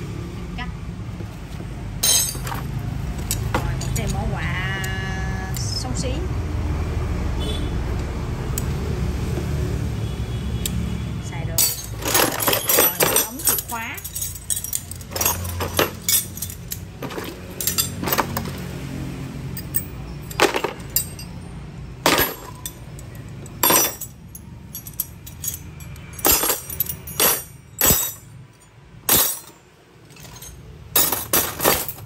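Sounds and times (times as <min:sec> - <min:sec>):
metal hand tools clinking: 0:02.0 - 0:05.7, 0:11.6 - 0:32.0.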